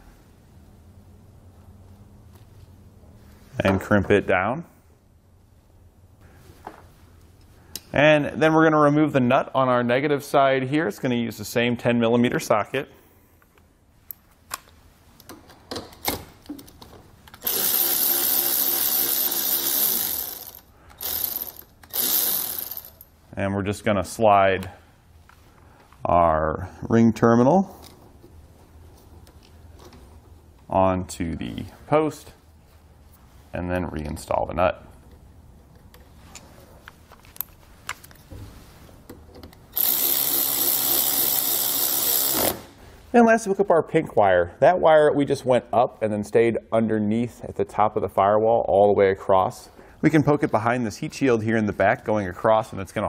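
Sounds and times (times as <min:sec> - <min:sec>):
cordless electric ratchet running: 0:17.4 - 0:23.0, 0:39.8 - 0:42.6.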